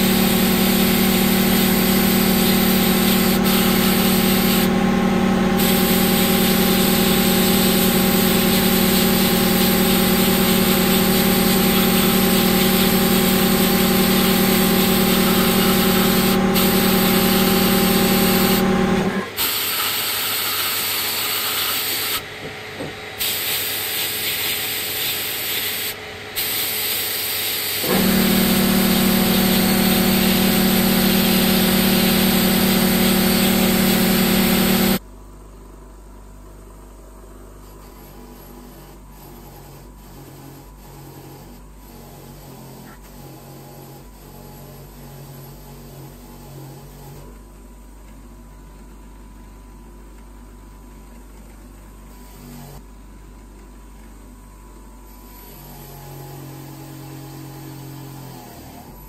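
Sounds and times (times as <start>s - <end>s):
motor humming: 0.0s - 19.4s, 27.8s - 35.0s
sandblaster air hiss: 0.0s - 22.2s, 23.2s - 35.0s.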